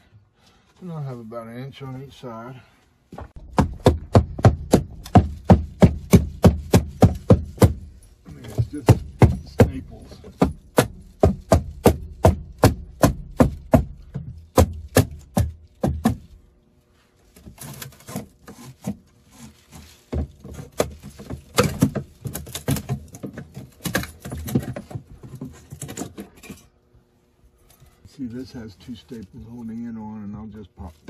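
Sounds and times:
wood scraping and rattling: 3.2s - 16.3s, 17.2s - 26.8s
tool striking wooden strip: 3.2s - 16.4s, 17.4s - 26.3s.

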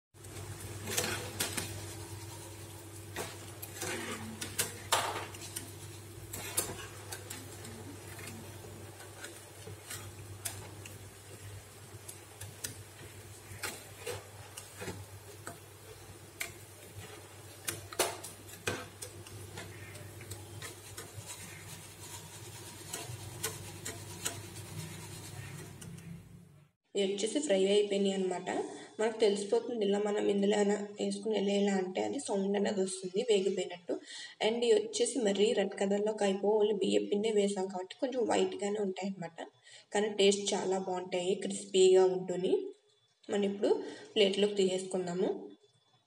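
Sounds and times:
food sizzling in oil: 0.2s - 26.2s
skimmer clinking and scraping pan: 0.3s - 26.2s.

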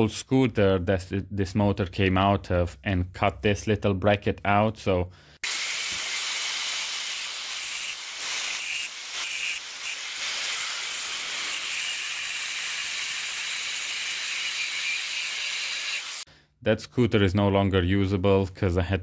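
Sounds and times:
angle grinder cutting metal: 5.4s - 16.3s.

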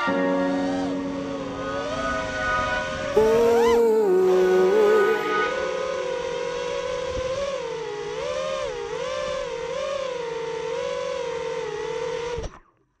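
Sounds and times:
quadcopter motors whining: 2.8s - 12.5s.

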